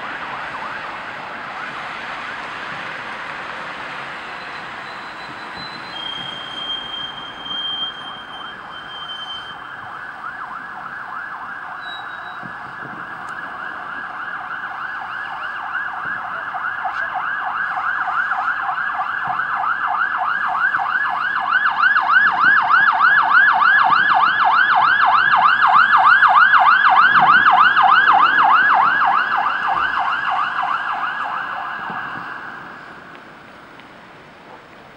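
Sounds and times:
fire engine sirens yelping: 0.0 - 34.9.

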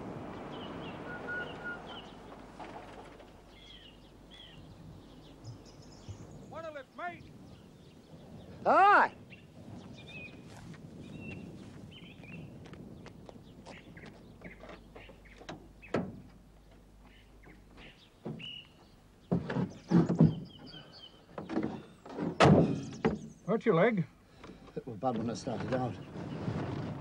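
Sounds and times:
knocks and thumps of climbing: 17.7 - 23.4.

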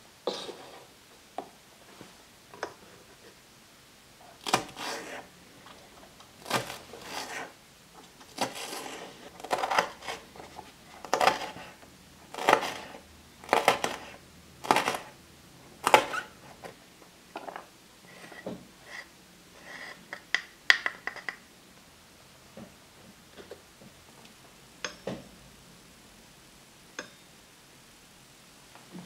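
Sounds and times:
knife cutting green onion: 4.4 - 5.3, 6.4 - 7.5, 8.3 - 10.3, 11.0 - 15.1, 15.8 - 16.3.

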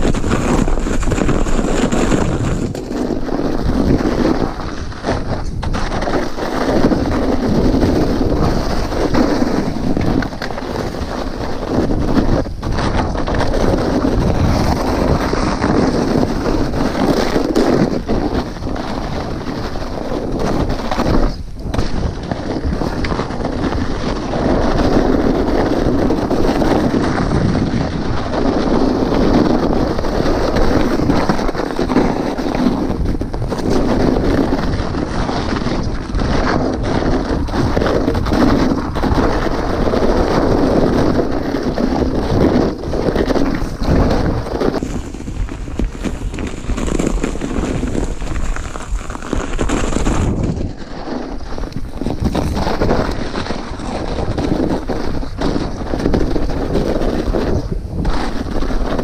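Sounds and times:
bike tyres rolling over snow: 0.0 - 59.0
wind rushing on microphone: 0.0 - 59.0.

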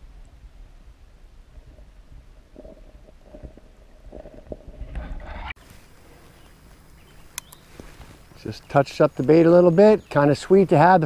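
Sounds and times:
faint outdoor stream sounds: 0.0 - 11.0
underwater rumbling and gurgling: 1.4 - 5.5.

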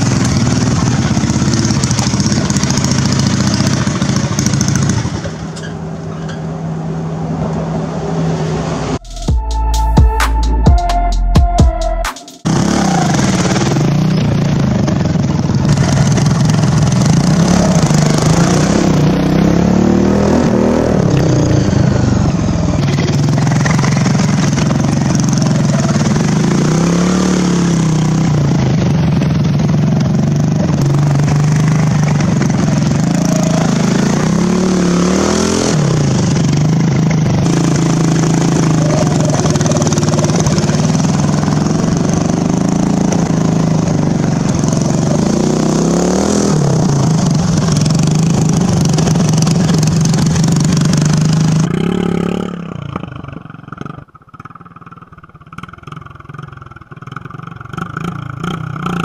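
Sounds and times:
lawn mower engine running hard: 0.0 - 9.0, 12.4 - 59.0.

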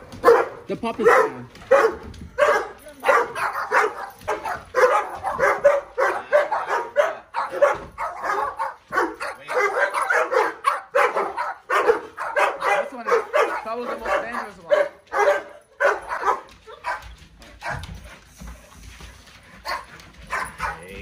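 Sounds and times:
dogs barking: 0.0 - 18.1, 19.6 - 21.0.

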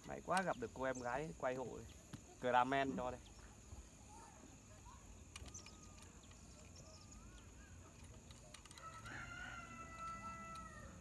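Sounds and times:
faint rooster crowing: 8.6 - 11.0.

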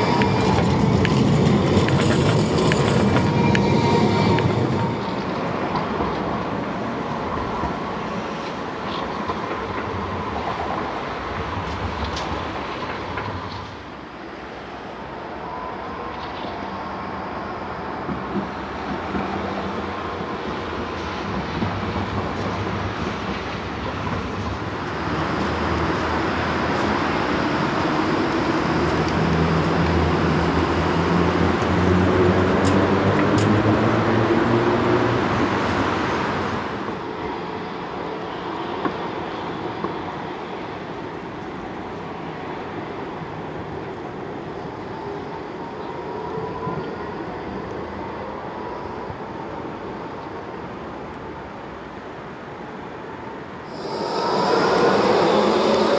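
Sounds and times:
tram motor whine: 0.0 - 6.3, 53.7 - 55.9
tram wheels rolling on rails: 0.0 - 55.9.

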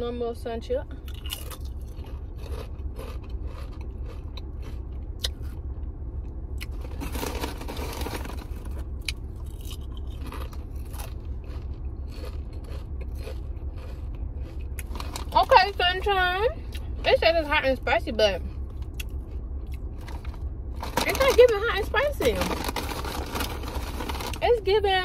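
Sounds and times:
steady low hum: 0.0 - 25.0
chips crunching while chewed: 1.0 - 5.6, 6.6 - 16.0, 18.7 - 24.4.

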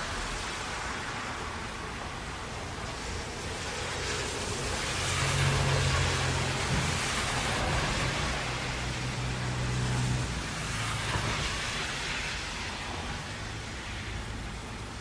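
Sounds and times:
car engines humming: 0.0 - 15.0
rain and tyre spray hiss: 0.0 - 15.0.

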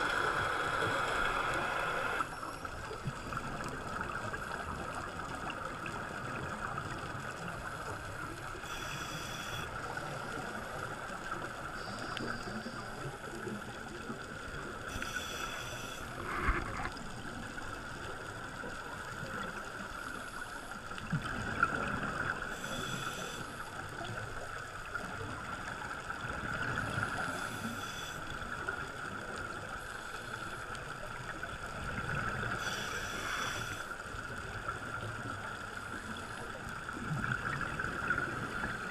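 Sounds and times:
exhaled bubbles underwater: 20.9 - 23.0, 34.2 - 38.9.

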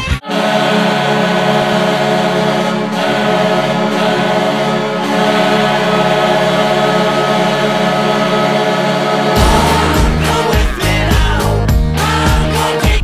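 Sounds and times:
goal horn blast: 9.4 - 11.3.

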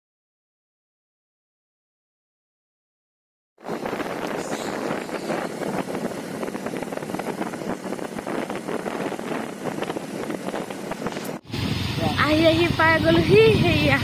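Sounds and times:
road and engine noise: 3.6 - 14.0
wind buffeting microphone: 3.6 - 14.0.

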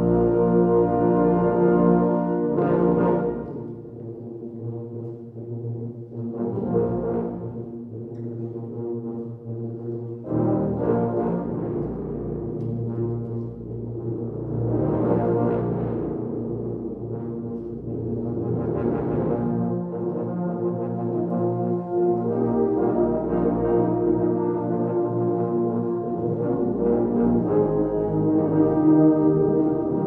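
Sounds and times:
brass ensemble playing fanfare: 0.0 - 3.8, 10.3 - 12.4, 18.5 - 30.0.

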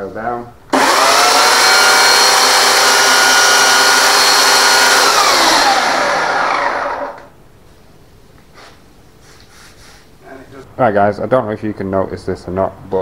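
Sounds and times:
electric chainsaw running: 0.7 - 7.3
motor winding down whine: 0.7 - 7.3.

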